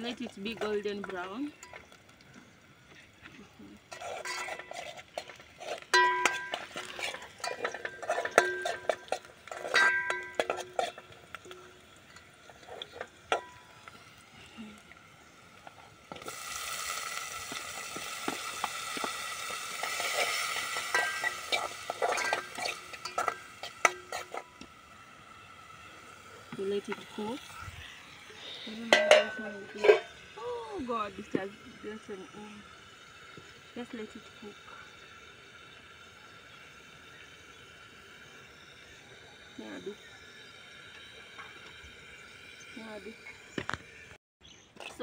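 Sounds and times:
loud steady sizzle: 0.0 - 44.2
onions frying in oil: 0.0 - 44.2
metal spoon clinking on pot: 5.9 - 12.3, 20.0 - 24.5, 28.9 - 30.1.

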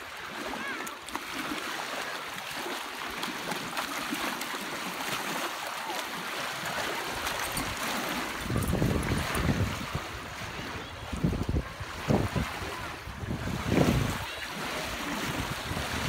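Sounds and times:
lake water splashing: 0.0 - 16.0
wind buffeting microphone: 7.3 - 16.0.

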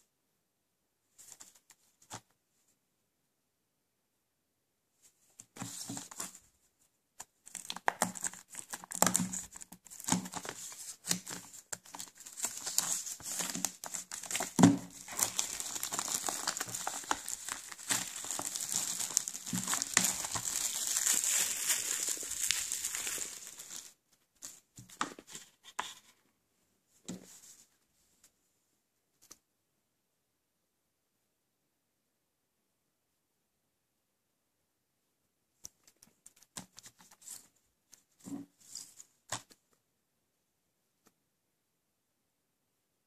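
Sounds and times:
plastic wrap crinkling: 7.5 - 24.6.

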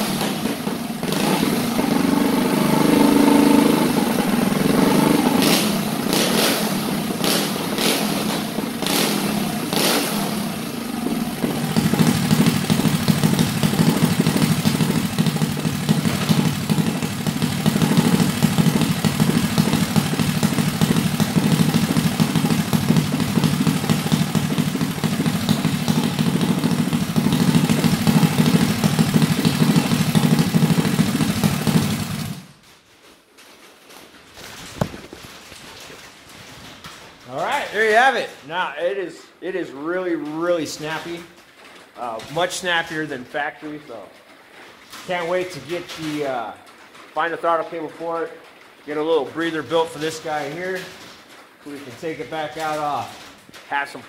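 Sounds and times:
engine revving and idling: 0.0 - 32.5.

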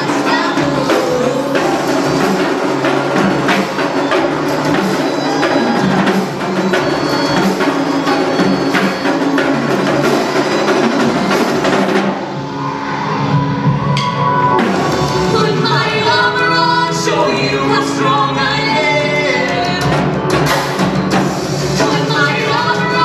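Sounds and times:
tenor drums and snare drum: 0.0 - 12.2, 19.3 - 23.0
backing music: 0.0 - 23.0.

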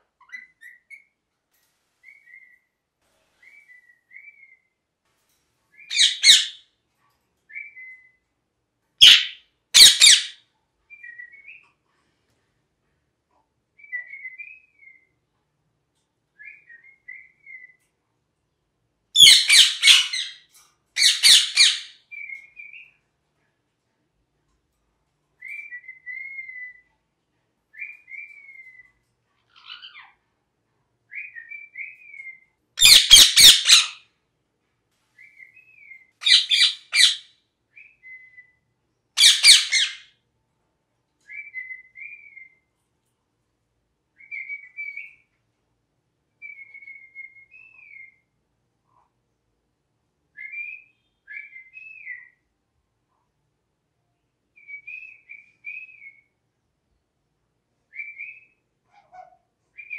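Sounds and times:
parakeet whistled chirps: 5.8 - 6.6, 9.0 - 11.6, 19.2 - 20.4, 21.0 - 22.9, 25.4 - 26.9, 31.1 - 34.0, 35.2 - 37.2, 39.2 - 40.0, 41.3 - 42.6, 44.2 - 45.2, 46.4 - 48.2, 50.3 - 52.4, 54.6 - 56.3, 57.9 - 59.9.

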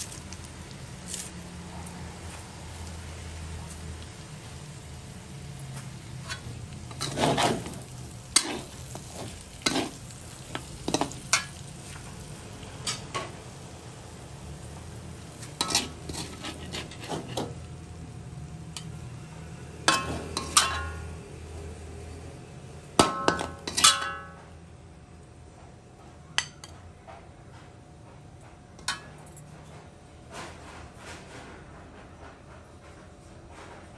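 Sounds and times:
metal spatula scraping a wok: 6.0 - 12.0, 15.3 - 17.6, 19.8 - 21.1, 23.0 - 24.2.

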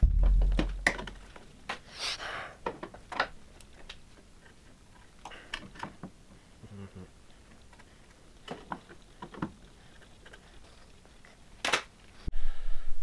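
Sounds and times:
steady hum: 0.0 - 1.8.

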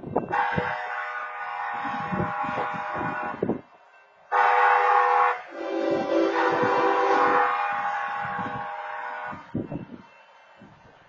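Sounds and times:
freight train wheels rumbling: 0.0 - 11.0
railroad crossing horn blast: 0.3 - 3.6, 4.3 - 9.7.

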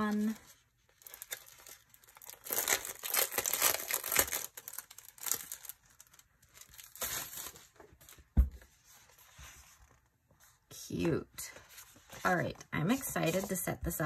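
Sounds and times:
paper and plastic crinkling: 0.0 - 10.1.

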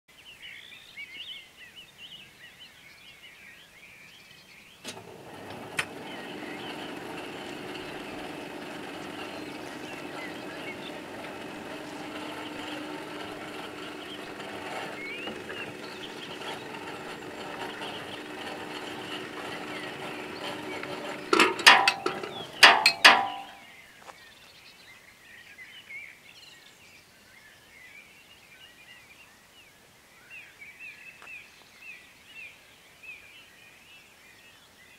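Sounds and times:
birds chirping: 0.1 - 26.6
barrier booms clunking: 4.9 - 23.6.

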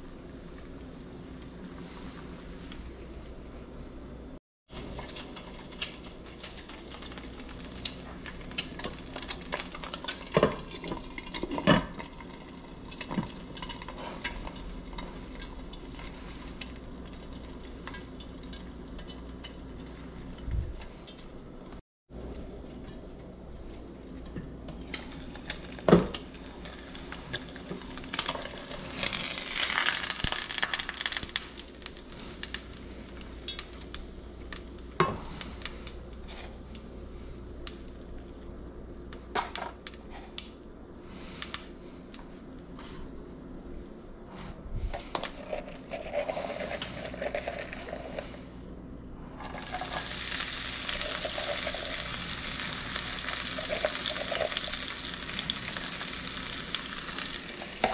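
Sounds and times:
food sizzling in hot oil: 25.0 - 35.0, 49.4 - 57.9.

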